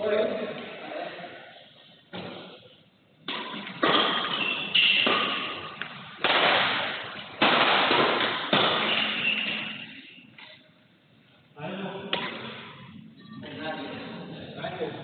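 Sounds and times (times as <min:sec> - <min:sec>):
rackets hitting shuttlecock with echo: 0:02.1 - 0:02.6, 0:03.2 - 0:10.6, 0:12.1 - 0:12.9.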